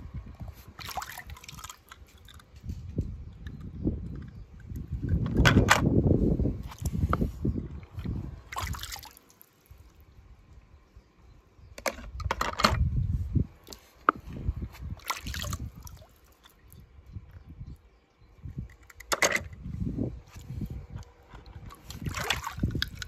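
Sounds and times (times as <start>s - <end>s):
pool water sloshing and splashing: 0.7s - 2.4s, 8.5s - 9.7s, 15.0s - 16.7s, 21.7s - 23.0s.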